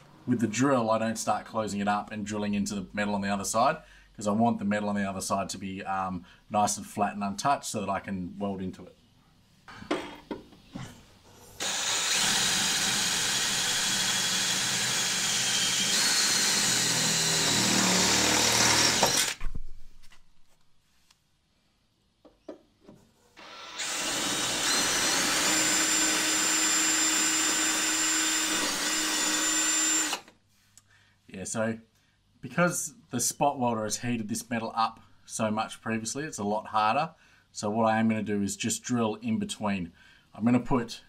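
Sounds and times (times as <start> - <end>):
cordless drill whining through steel: 11.6 - 19.4, 23.4 - 30.4.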